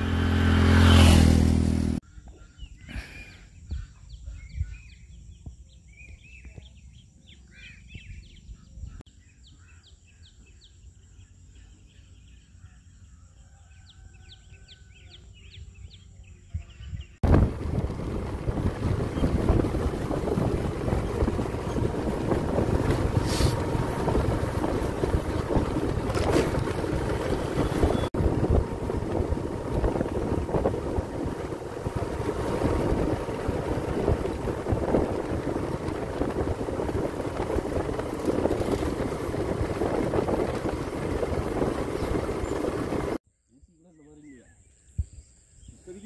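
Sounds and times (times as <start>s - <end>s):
wind buffeting microphone: 16.5s - 43.2s.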